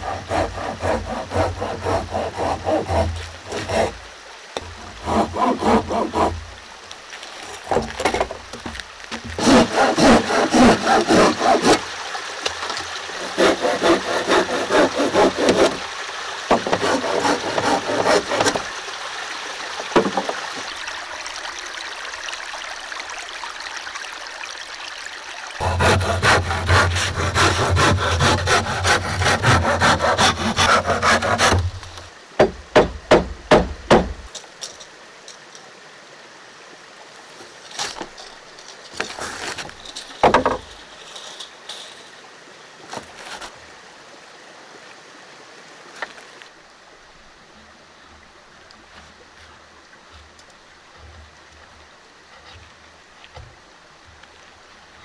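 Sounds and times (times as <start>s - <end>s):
hand saw cutting wood: 0.0s - 4.0s, 4.6s - 6.4s, 9.2s - 11.9s, 13.2s - 15.9s, 16.5s - 18.7s, 25.6s - 34.3s.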